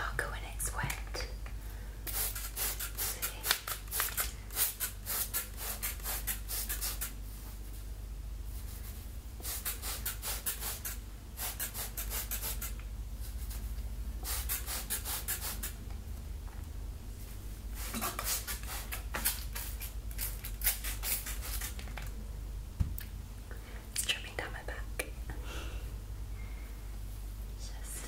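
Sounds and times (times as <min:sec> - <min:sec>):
spray bottle spritzing: 0:02.1 - 0:07.1, 0:09.4 - 0:12.8, 0:14.2 - 0:15.8, 0:17.8 - 0:21.9.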